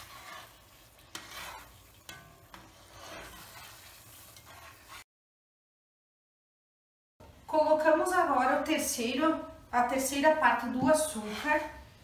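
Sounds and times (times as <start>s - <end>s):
faint sizzle: 0.0s - 5.0s
spoon stirring jam in pot: 0.0s - 5.0s, 10.6s - 11.8s.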